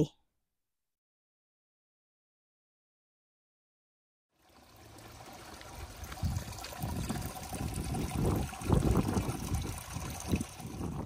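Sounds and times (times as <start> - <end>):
water trickling: 4.4 - 11.0
wind buffeting microphone: 5.9 - 11.0.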